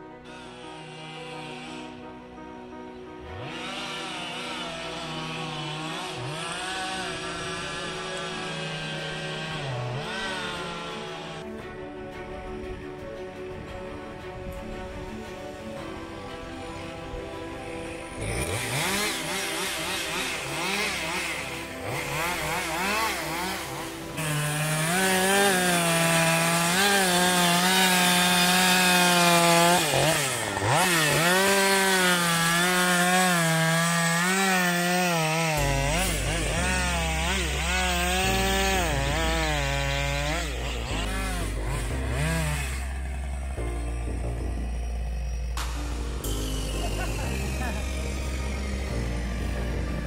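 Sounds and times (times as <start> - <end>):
chainsaw cutting wood: 0.0 - 11.8, 14.6 - 50.0
low engine rumble: 40.5 - 50.0.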